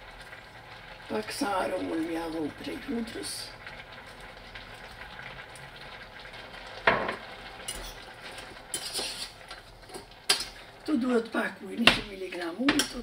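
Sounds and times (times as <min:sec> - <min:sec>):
hot pan hissing: 0:00.0 - 0:11.2
spoon stirring vegetables in saucepan: 0:06.4 - 0:13.0.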